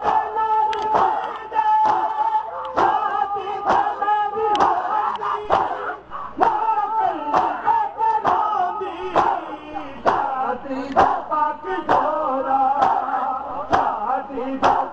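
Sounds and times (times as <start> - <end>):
hands slapping chests: 0.0 - 3.9, 4.5 - 5.8, 7.3 - 7.6, 9.2 - 9.4, 10.0 - 10.3, 10.9 - 11.2, 11.8 - 12.1, 12.8 - 13.1, 13.7 - 14.0, 14.6 - 14.9
men chanting a lament: 0.0 - 14.9.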